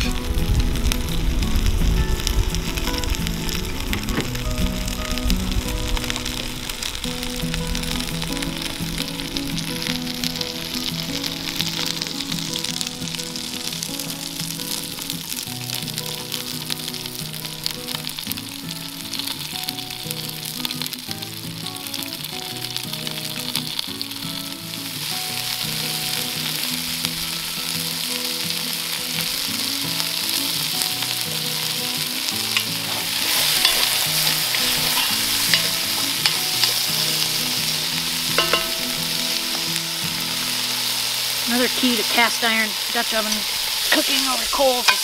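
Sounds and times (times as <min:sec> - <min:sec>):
meat sizzling in oil: 0:00.0 - 0:45.0
metal tongs clicking on pot: 0:32.5 - 0:37.3, 0:38.4 - 0:38.8.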